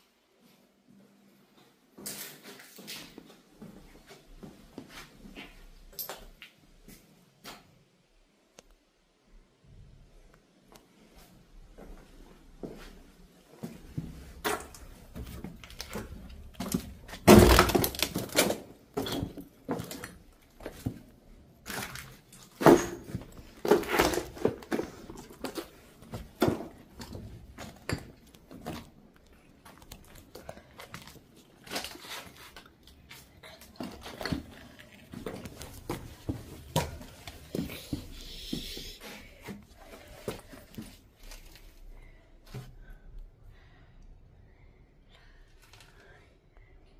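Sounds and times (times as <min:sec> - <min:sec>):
footsteps crunching over rubble: 0:13.6 - 0:38.7
debris knocking and cracking: 0:15.6 - 0:21.0, 0:21.6 - 0:29.0.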